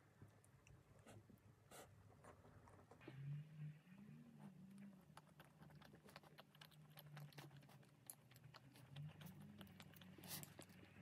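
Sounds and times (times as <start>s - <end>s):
crunchy chocolate bar chewing: 4.8s - 11.0s.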